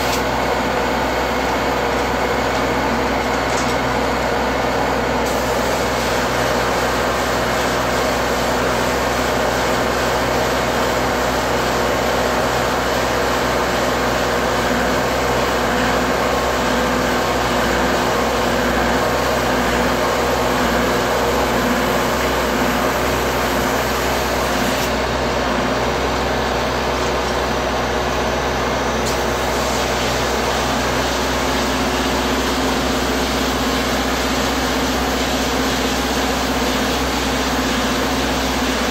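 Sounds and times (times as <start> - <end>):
mechanical hum: 0.0 - 38.9
spray foam gun hissing: 5.2 - 10.0, 29.1 - 38.9.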